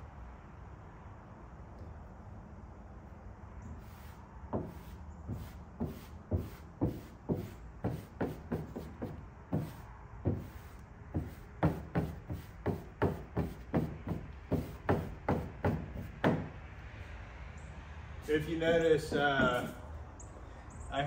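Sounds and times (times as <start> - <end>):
squeegee swiping over vinyl: 3.8 - 16.5.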